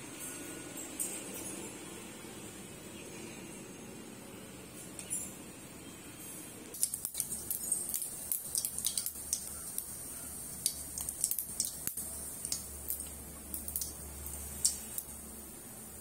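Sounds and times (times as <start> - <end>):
seeds popping in hot oil: 6.7 - 15.2.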